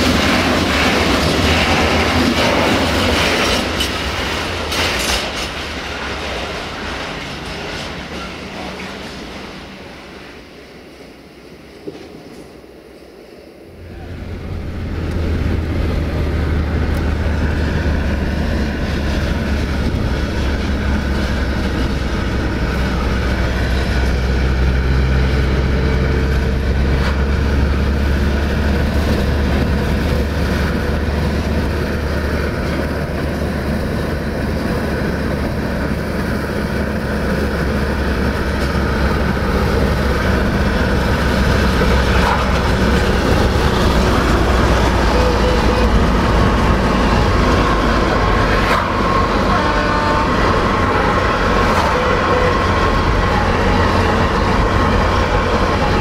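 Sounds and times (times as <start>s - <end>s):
car cabin road and engine drone: 13.6s - 56.0s.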